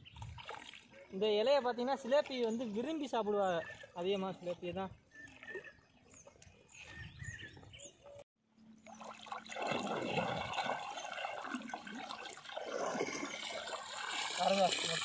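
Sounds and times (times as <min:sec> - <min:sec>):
small birds chirping: 0:00.0 - 0:09.0
water splashing and sloshing: 0:00.0 - 0:15.0.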